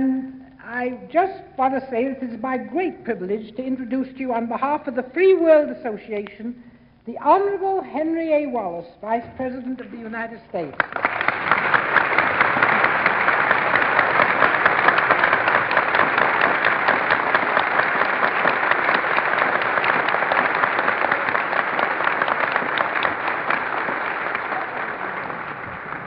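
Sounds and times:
audience applauding: 10.8s - 26.0s.

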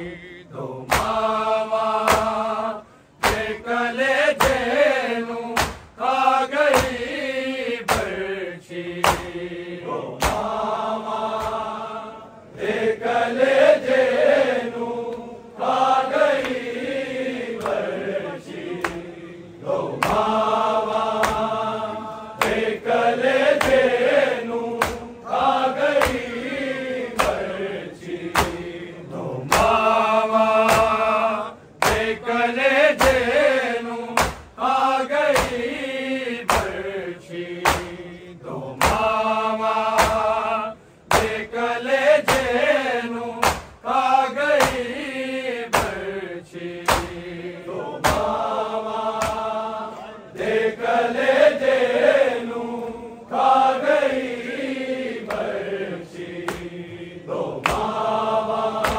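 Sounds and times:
men chanting a lament: 0.0s - 58.9s
sharp rhythmic beats: 0.8s - 2.6s, 22.4s - 26.4s, 28.2s - 28.8s, 29.4s - 33.5s, 34.1s - 35.7s, 36.4s - 36.9s, 37.6s - 38.2s, 38.8s - 40.5s, 41.1s - 41.6s, 43.4s - 45.0s, 45.7s - 46.2s, 48.0s - 49.6s, 57.6s - 58.9s.

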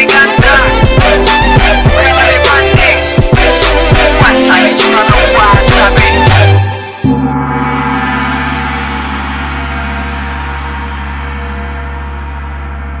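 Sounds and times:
backing music: 0.0s - 10.6s
gong ringing: 7.0s - 13.0s.

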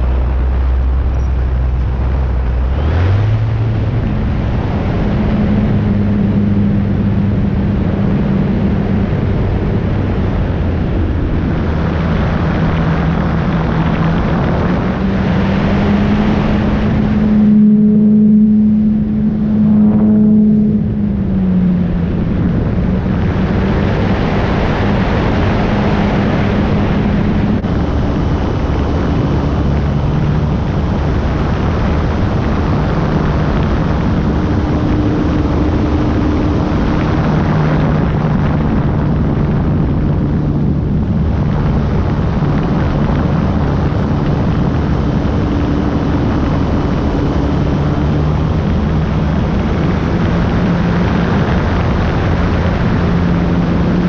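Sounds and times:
electric motor and propeller: 0.0s - 54.0s
rushing air noise: 0.0s - 54.0s.

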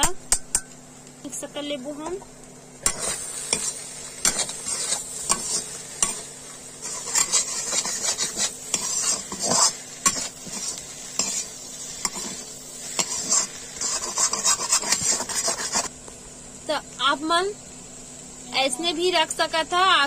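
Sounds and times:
oil sizzling: 0.0s - 20.0s
metal spatula scraping a pan: 2.8s - 15.9s.

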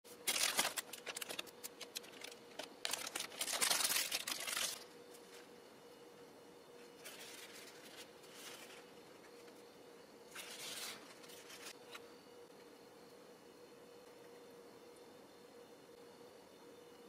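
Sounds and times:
plastic film crinkling: 0.1s - 4.8s
faint steady hum: 0.1s - 17.0s.

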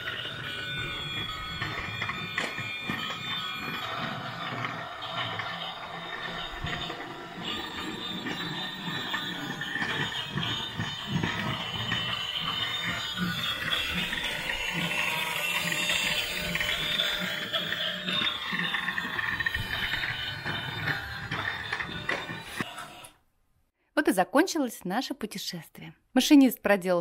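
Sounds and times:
small clicks of train on track: 0.0s - 22.9s
toy train motor whirring: 0.0s - 23.2s.

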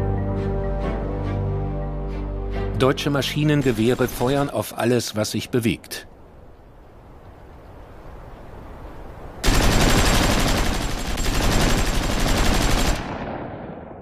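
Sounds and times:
machine gun firing burst: 9.4s - 13.4s.

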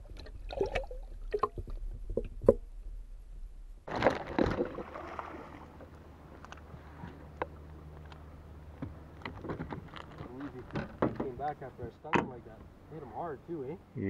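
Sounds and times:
water splashing: 0.0s - 1.9s, 3.9s - 7.6s
water sloshing: 3.9s - 13.0s.

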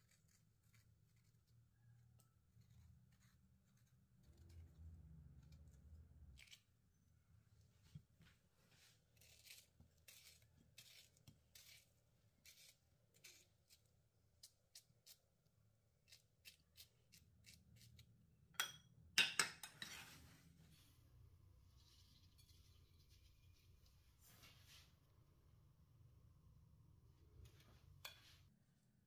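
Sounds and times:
soft cutting or scraping strokes: 8.6s - 15.2s, 21.7s - 25.0s
kitchen clatter: 18.6s - 20.1s.

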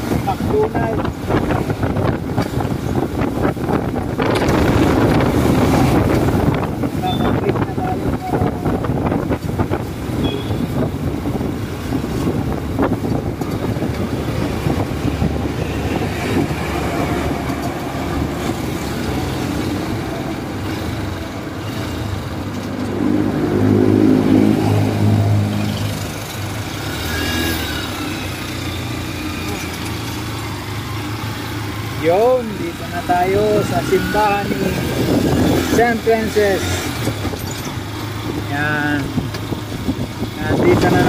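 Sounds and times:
road and wind noise: 0.0s - 41.0s
truck engine passing: 13.5s - 39.2s.

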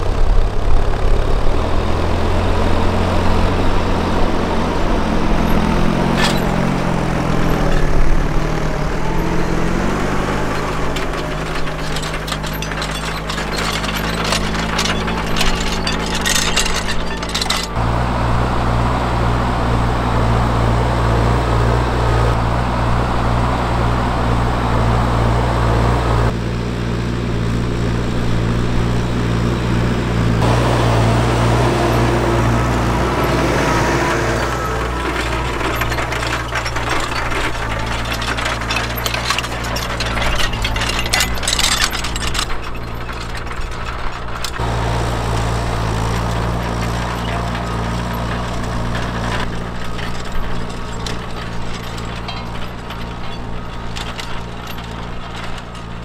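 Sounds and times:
tractor engine running under load: 0.0s - 56.0s
clay crackling and clattering: 2.7s - 17.9s, 30.4s - 56.0s.

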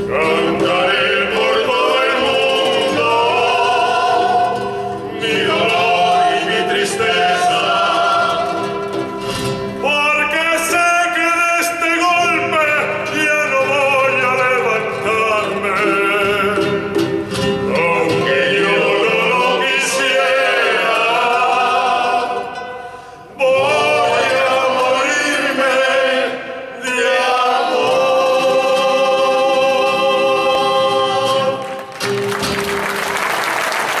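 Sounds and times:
male vocal group singing in harmony: 0.0s - 8.9s, 9.8s - 17.0s, 17.7s - 31.8s
applause: 31.6s - 34.0s.

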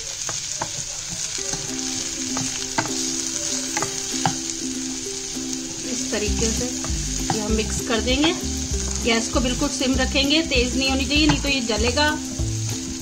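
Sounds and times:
hot oil sizzling: 0.0s - 13.0s
wooden spatula scraping frying pan: 0.2s - 4.5s, 5.7s - 9.8s.

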